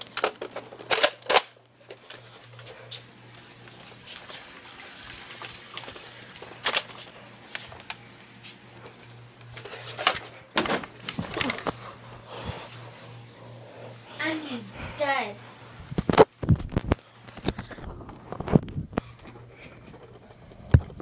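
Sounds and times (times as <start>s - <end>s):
low steady hum: 0.0s - 21.0s
camera handling knocks and rustling: 10.0s - 11.8s.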